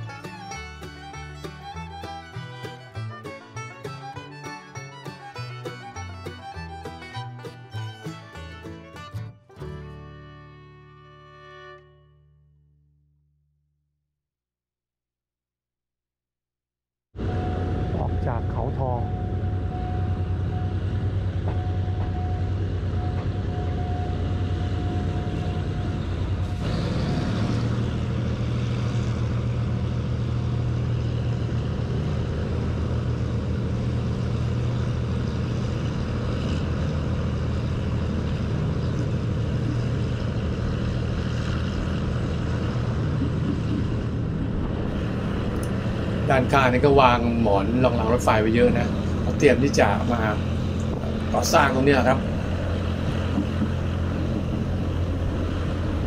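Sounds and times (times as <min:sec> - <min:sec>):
train rumbling on track: 0:00.0 - 0:08.8, 0:17.2 - 0:56.0
steady high tone: 0:17.2 - 0:26.5.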